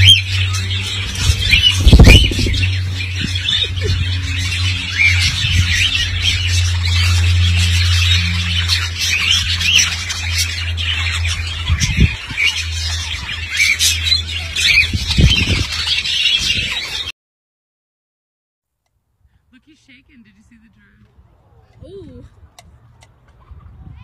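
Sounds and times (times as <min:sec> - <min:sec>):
low hum: 0:00.0 - 0:15.9
parakeets chirping and squawking: 0:00.0 - 0:17.1.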